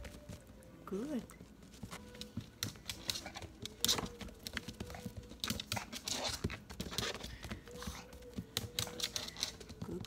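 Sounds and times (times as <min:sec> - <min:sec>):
dog claws clicking on hard floor: 0:01.9 - 0:09.9.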